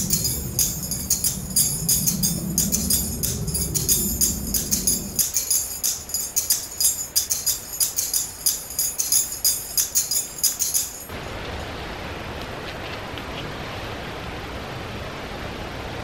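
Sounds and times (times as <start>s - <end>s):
music with high percussion rhythm: 0.0s - 11.1s.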